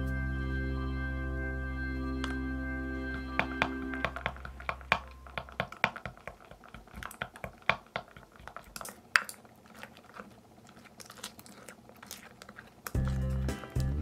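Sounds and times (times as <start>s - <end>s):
stick knocking glass bowl: 3.4s - 8.3s
wet slime squelches: 5.0s - 14.0s.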